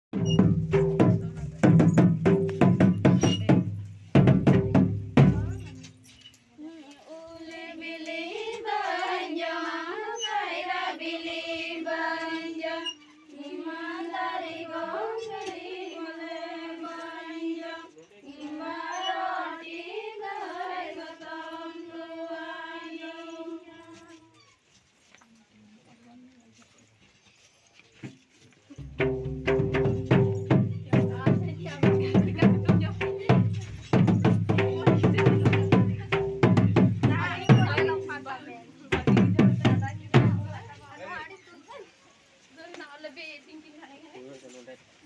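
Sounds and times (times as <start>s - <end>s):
loud drum strokes: 0.2s - 5.9s, 28.8s - 38.3s
women singing: 6.6s - 24.4s, 30.5s - 33.6s, 34.5s - 41.2s.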